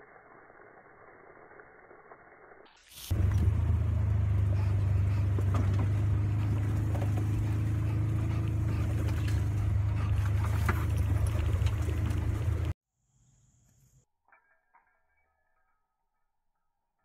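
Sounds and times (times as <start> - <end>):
vehicle engine rumble: 2.9 - 12.8.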